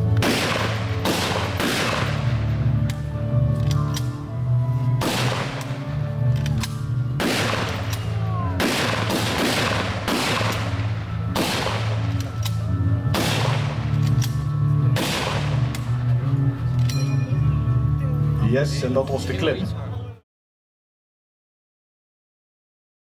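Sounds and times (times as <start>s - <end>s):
rifle shots with echo: 0.1s - 3.0s, 5.0s - 6.0s, 6.6s - 15.9s.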